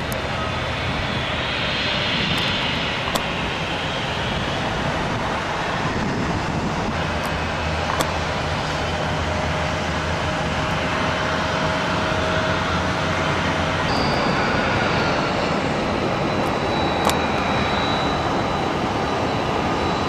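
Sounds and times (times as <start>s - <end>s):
faint rising whine: 12.4s - 20.0s.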